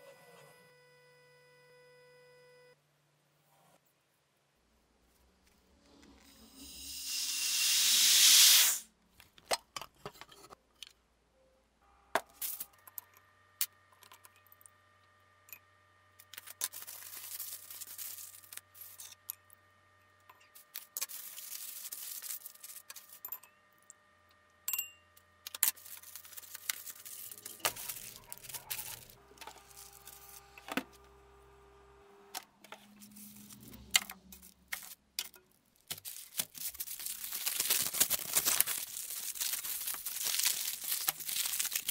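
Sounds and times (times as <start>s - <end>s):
loud hiss of rushing air: 6.5s - 8.9s
aluminium foil crinkling: 16.2s - 19.2s, 20.5s - 23.3s, 25.5s - 30.6s, 32.8s - 41.9s.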